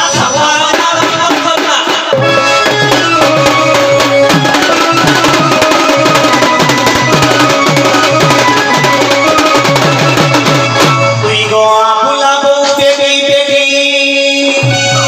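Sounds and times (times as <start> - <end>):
folk music with hand drum: 0.0 - 11.6, 12.6 - 15.0
sharp clicking drum strokes: 0.2 - 11.0.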